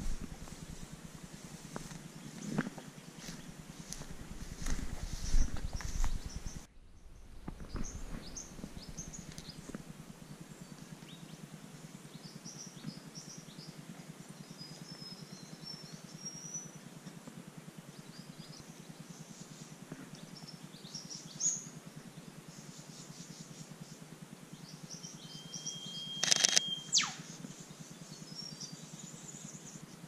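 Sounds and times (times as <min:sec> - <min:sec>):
steady low hum: 0:00.0 - 0:30.0
small birds chirping and whistling: 0:04.6 - 0:06.7, 0:24.7 - 0:29.8.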